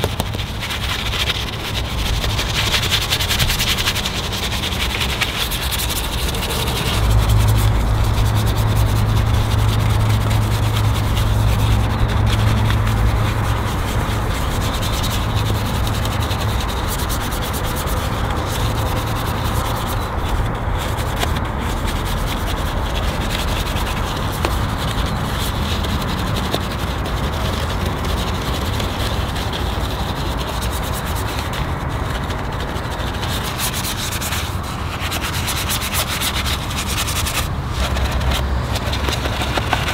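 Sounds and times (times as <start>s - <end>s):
low machine hum: 0.0s - 26.1s
rubbing and scrubbing: 0.0s - 39.9s.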